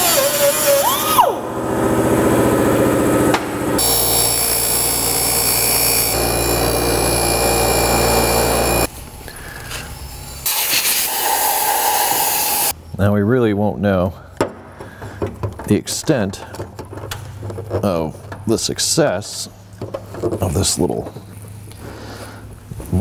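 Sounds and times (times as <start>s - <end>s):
air-powered cutting tool whining: 0.0s - 8.9s, 10.4s - 12.7s
bench grinder running: 0.0s - 8.9s.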